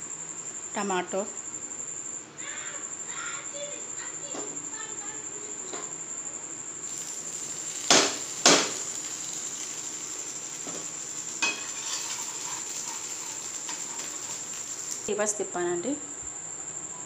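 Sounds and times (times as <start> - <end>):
high-pitched whine: 6.9 - 15.6
metal spatula knocking on griddle: 7.8 - 9.8, 10.6 - 14.4.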